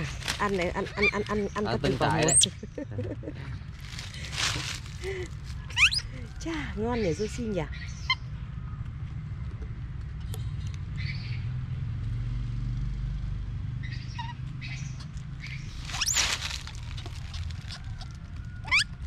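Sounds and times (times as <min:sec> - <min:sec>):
rustles and clicks in dry leaves: 0:00.0 - 0:02.4, 0:03.6 - 0:06.8, 0:15.1 - 0:19.0
steady low rumble: 0:00.0 - 0:11.0
monkey squeak: 0:00.8 - 0:02.6, 0:05.7 - 0:06.2, 0:14.1 - 0:19.0.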